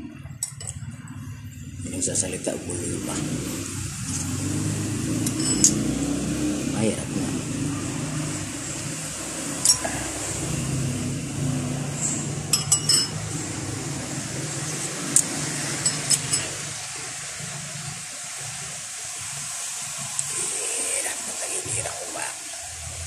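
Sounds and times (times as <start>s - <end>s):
metal spoon clinking on bowl: 5.2s - 5.8s, 9.6s - 9.8s, 12.5s - 13.2s, 15.8s - 16.5s.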